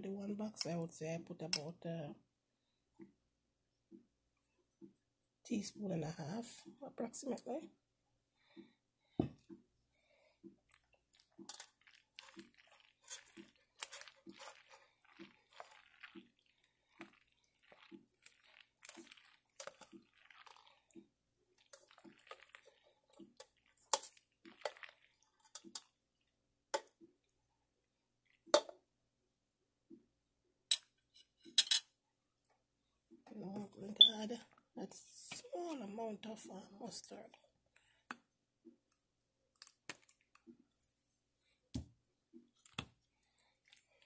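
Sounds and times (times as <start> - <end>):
spoon squishing through salad: 10.4 - 27.3, 37.7 - 41.1, 42.5 - 44.0.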